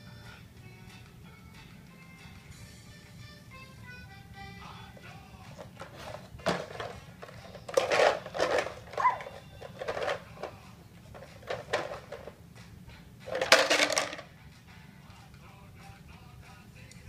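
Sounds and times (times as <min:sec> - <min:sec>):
plastic toys rattling in basket: 0:05.6 - 0:12.4, 0:13.3 - 0:14.3
toys spilling out: 0:05.8 - 0:10.5, 0:13.3 - 0:14.2.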